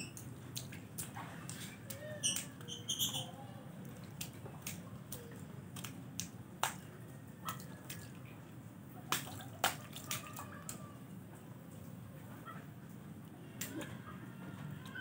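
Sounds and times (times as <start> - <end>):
splashing in a shallow puddle: 0.1 - 10.9.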